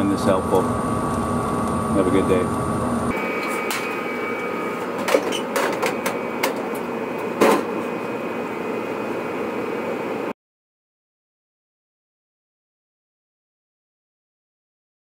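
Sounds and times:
furnace blower hum with whine: 0:00.0 - 0:10.4.

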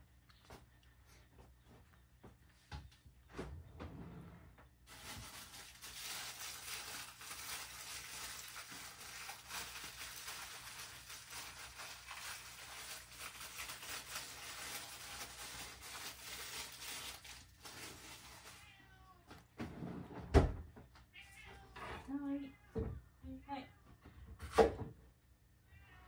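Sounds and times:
cat chewing and lapping: 0:00.0 - 0:02.7.

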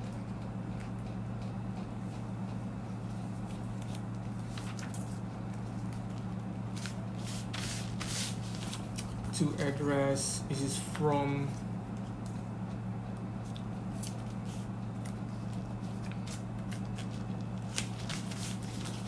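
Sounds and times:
steady low hum: 0:00.0 - 0:19.0
paper and plastic crinkling: 0:03.8 - 0:09.2, 0:13.9 - 0:19.0.

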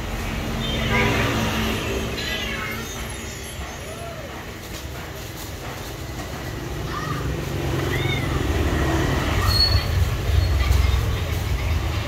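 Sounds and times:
passing vehicle rumble: 0:06.0 - 0:12.0
short high squeals: 0:09.4 - 0:10.6.

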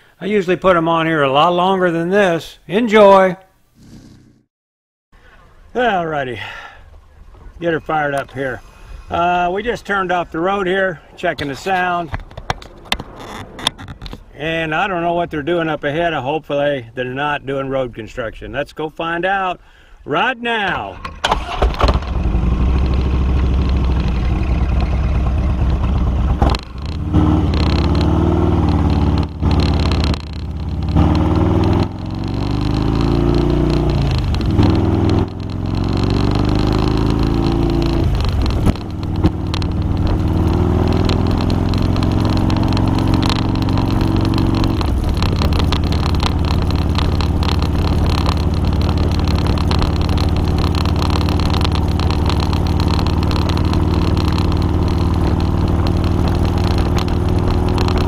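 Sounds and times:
motorcycle engine accelerating: 0:03.8 - 0:04.5, 0:21.0 - 0:58.0.

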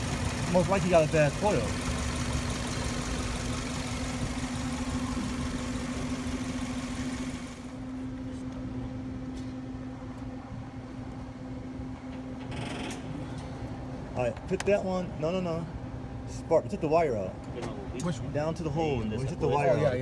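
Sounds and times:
engine idling with misfire: 0:00.0 - 0:07.9.

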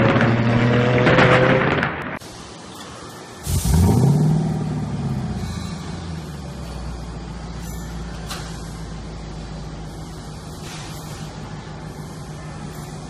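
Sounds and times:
car engine starting and idling: 0:02.8 - 0:13.0.

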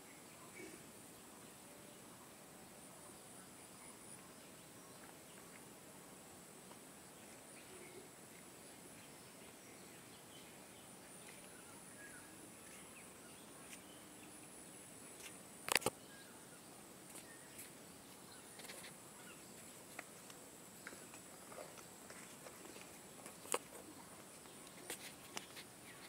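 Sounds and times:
faint bird chirps: 0:00.0 - 0:05.7, 0:07.1 - 0:19.9
sharp click: 0:15.2 - 0:16.0.

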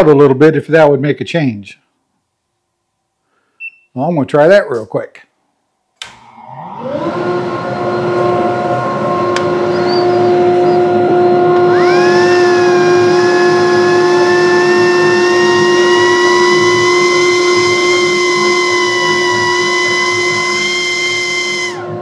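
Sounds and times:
dust collector motor humming: 0:06.0 - 0:22.0
high air whistle: 0:07.2 - 0:22.0.

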